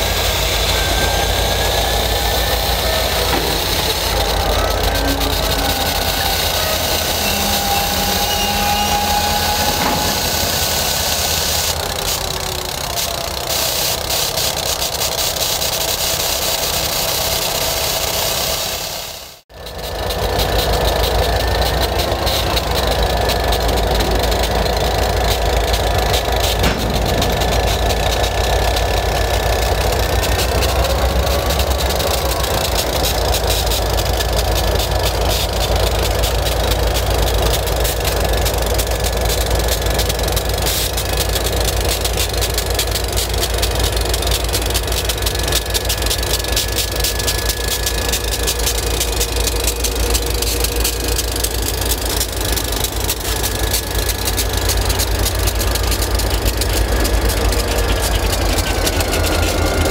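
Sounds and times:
train wheels clattering over rails: 0.0 - 18.8, 19.6 - 59.9
diesel locomotive engine running: 0.0 - 59.9
faint thin squeals: 0.4 - 11.8
low rumble: 21.5 - 30.5.

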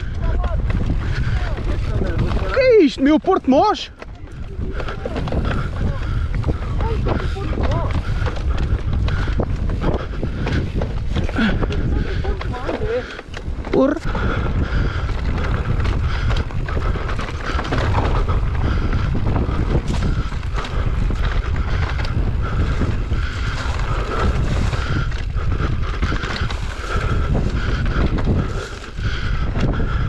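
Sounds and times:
bike knocks and rattles: 0.0 - 30.0
tyre noise on dirt: 0.0 - 30.0
wind buffeting microphone: 0.0 - 30.0.

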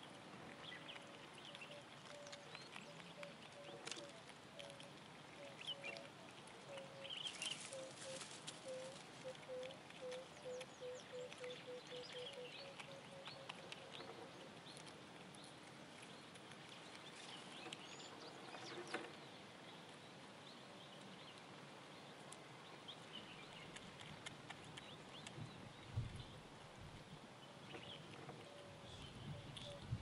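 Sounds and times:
low bird calls: 6.7 - 14.5.

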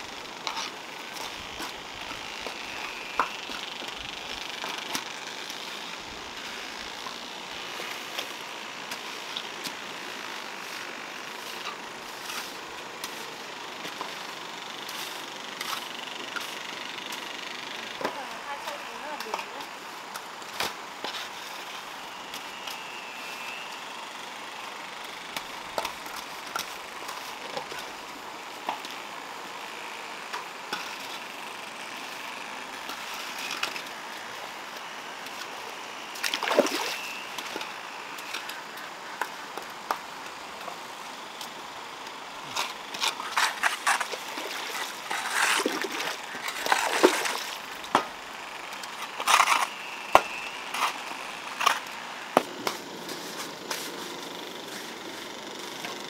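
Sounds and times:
water splashing and sloshing: 36.2 - 37.0, 44.3 - 47.7.

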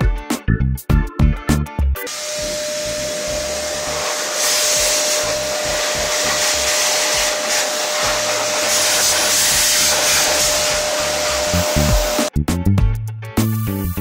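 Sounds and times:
motor whine: 2.1 - 12.3
vacuum blowing air: 2.1 - 12.3.

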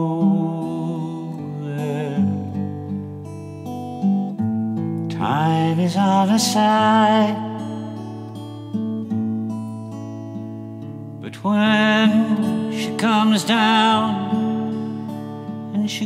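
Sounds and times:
man singing: 0.0 - 2.7, 5.0 - 8.1, 11.2 - 16.0
acoustic guitar picking: 0.0 - 16.0.

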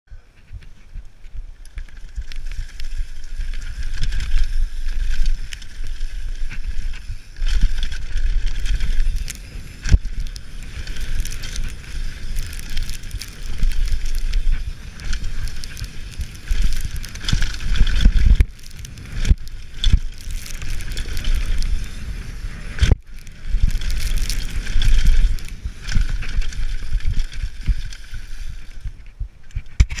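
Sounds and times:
bike tyres on loose dirt: 0.1 - 30.0
wind rushing over microphone: 0.1 - 30.0
bike knocks and rattles: 28.8 - 30.0.

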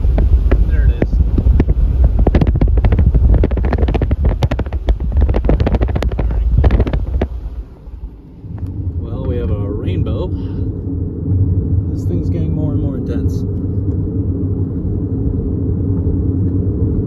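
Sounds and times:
stones pinging against tyres: 0.0 - 7.6
low road rumble: 0.0 - 17.0.

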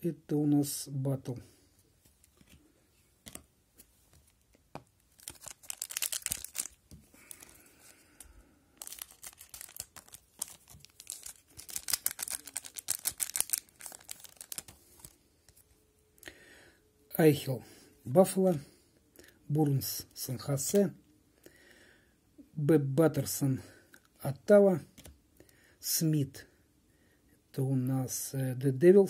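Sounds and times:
card pack wrapper tearing and crinkling: 5.0 - 15.6.

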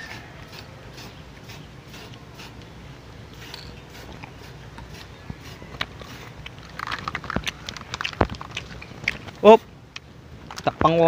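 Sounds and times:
spray can hissing: 0.0 - 2.6, 3.3 - 6.4.

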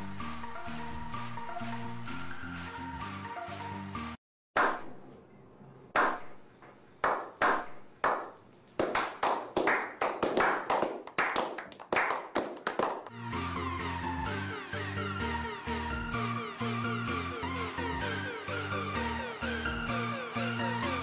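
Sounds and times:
background music with steady beat: 0.0 - 4.8, 13.1 - 21.0
group slow clapping: 6.0 - 13.2.

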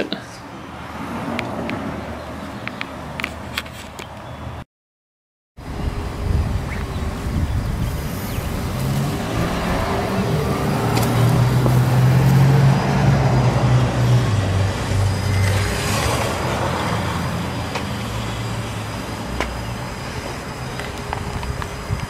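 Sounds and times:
vehicle engine hum: 5.6 - 22.0.

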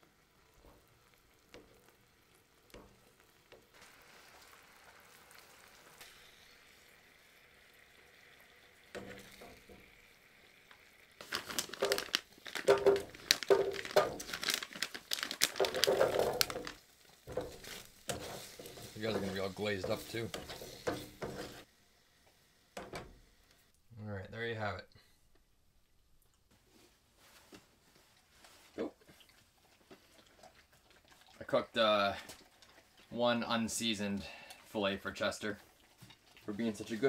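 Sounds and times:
fish frying in oil: 0.0 - 21.7.

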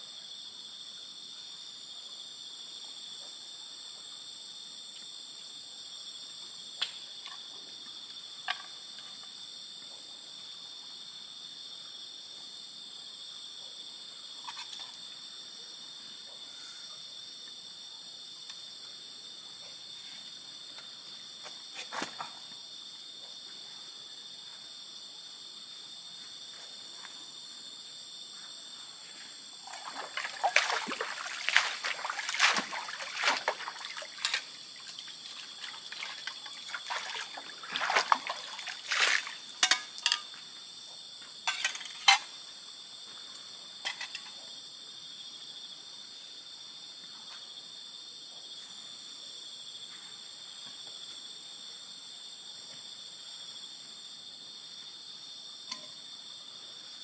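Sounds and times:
high-pitched insect chorus: 0.0 - 57.0
water splashing and trickling: 29.4 - 40.4.

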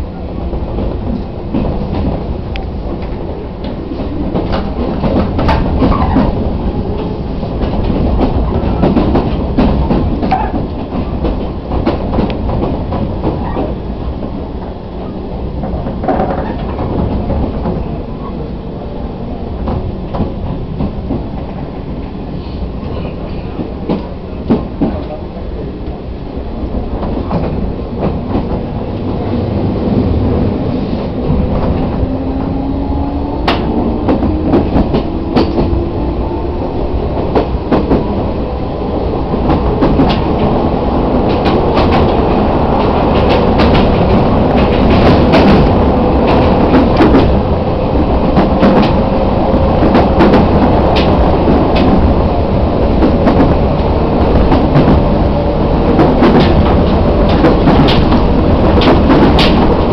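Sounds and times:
train running rumble: 0.0 - 59.9
wheels clacking over rail joints: 0.4 - 18.4, 26.6 - 59.9.

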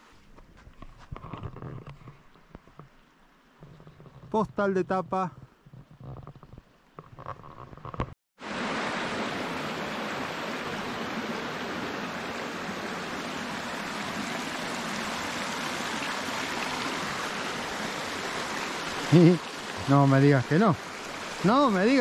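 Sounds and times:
water rushing over rocks: 8.4 - 22.0.

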